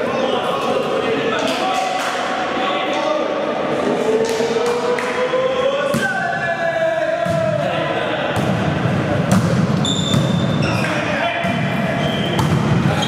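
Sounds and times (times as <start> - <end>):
volleyball thuds: 8.3 - 10.5.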